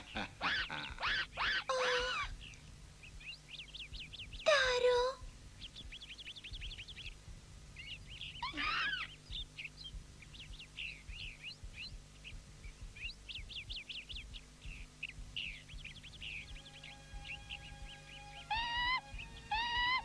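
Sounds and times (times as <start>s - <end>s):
animal chirps and squeaks: 0.0s - 7.2s, 7.8s - 9.8s, 10.7s - 20.0s
low steady hum: 0.0s - 20.0s
animal falling cry: 8.4s - 9.2s.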